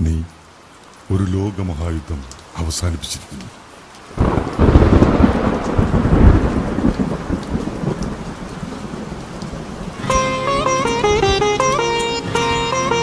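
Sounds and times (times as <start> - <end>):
steady rain: 0.0 - 13.0
thunder rumbling: 4.1 - 11.9
plucked-string melody: 10.0 - 13.0.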